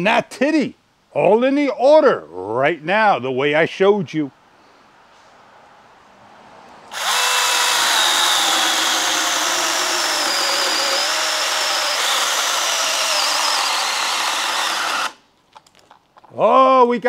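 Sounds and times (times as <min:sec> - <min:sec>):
chainsaw cutting branch: 0:06.9 - 0:15.2.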